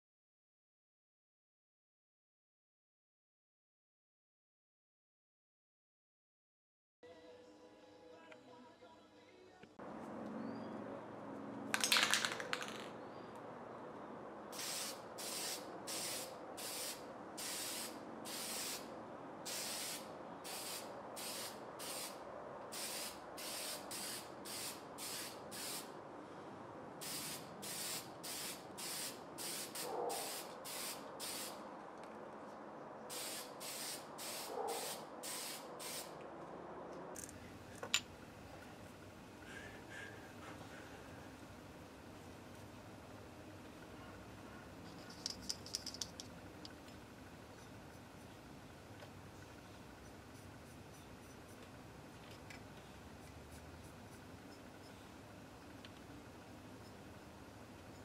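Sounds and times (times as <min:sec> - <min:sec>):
aerosol spray can hissing: 0:14.6 - 0:18.9, 0:19.5 - 0:22.2, 0:22.8 - 0:25.9, 0:27.0 - 0:31.6, 0:33.1 - 0:36.1.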